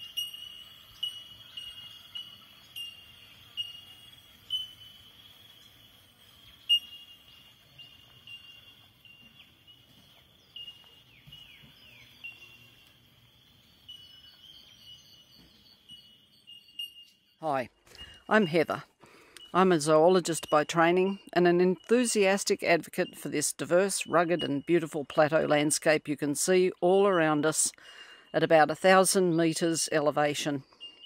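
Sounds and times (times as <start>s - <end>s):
bell-like bird call: 0.0s - 5.6s, 6.5s - 11.4s, 13.8s - 18.8s, 30.6s - 31.0s
high bird chorus: 0.0s - 23.4s.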